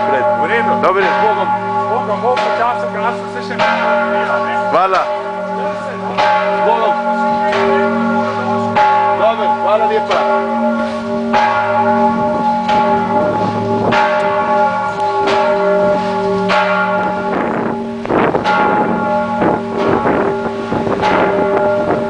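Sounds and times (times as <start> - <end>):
church bells ringing: 0.0 - 22.0.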